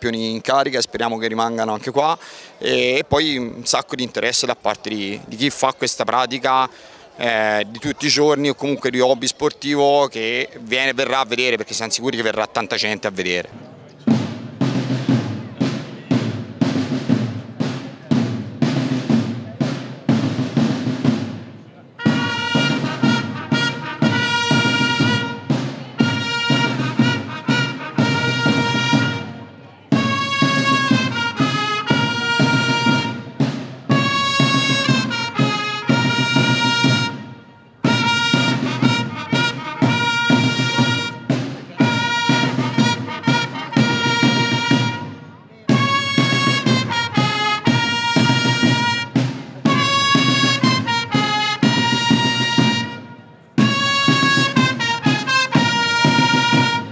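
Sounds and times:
brass band playing: 14.1 - 56.9.

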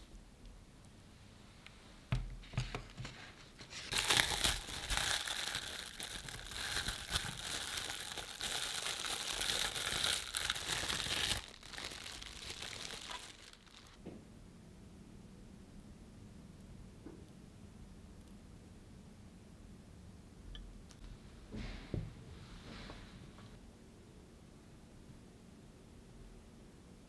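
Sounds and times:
cling film crinkling: 3.6 - 14.0.

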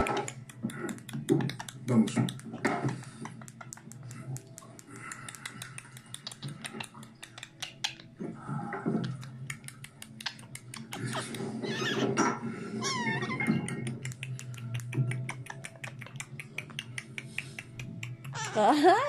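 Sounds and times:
sharp clicks and taps: 0.0 - 8.1, 9.0 - 11.4, 13.4 - 18.5.

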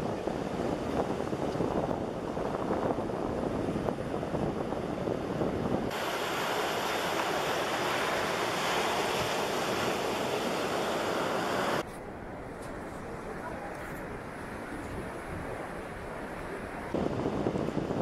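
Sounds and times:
ocean surf washing on beach: 0.0 - 11.8
wind buffeting microphone: 0.0 - 18.0.

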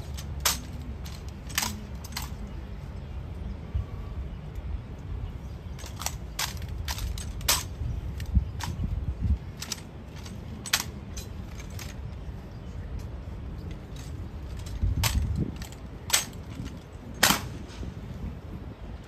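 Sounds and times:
metallic rifle drill clicks: 0.1 - 2.4.

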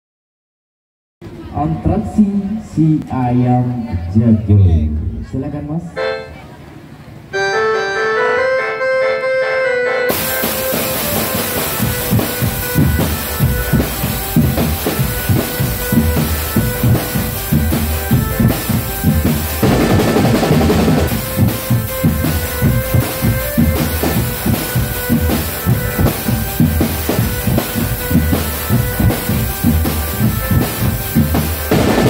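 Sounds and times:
short melodic phrase: 7.3 - 32.0
marching snare and bass drums: 10.1 - 32.0.

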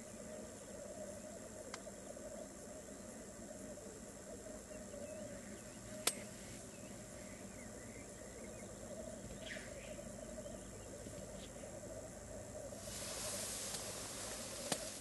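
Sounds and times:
faint higher bird calls: 0.0 - 15.0
black grouse low bubbling calls: 6.8 - 15.0.

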